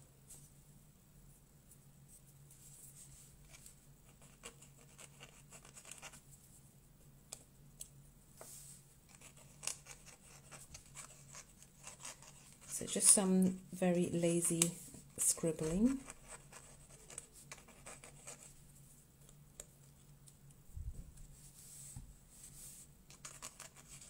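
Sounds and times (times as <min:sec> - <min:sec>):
pen nib scratching on paper: 0:04.0 - 0:06.2, 0:09.1 - 0:13.2, 0:15.4 - 0:18.5, 0:23.1 - 0:24.0.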